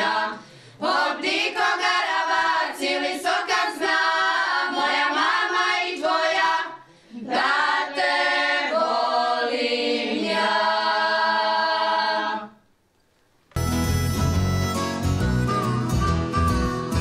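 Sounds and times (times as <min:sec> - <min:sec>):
women singing unaccompanied: 0:00.0 - 0:12.6.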